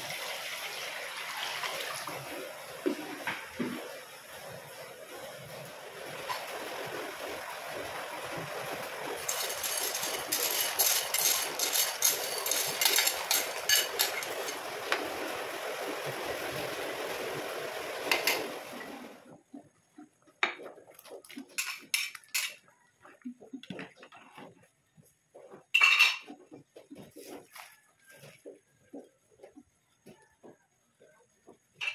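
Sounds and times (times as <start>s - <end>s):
soup boiling: 0.0s - 19.3s
ladle stirring pot: 9.2s - 15.0s, 20.5s - 24.5s
spoon clinking on glass bowl: 9.3s - 14.6s.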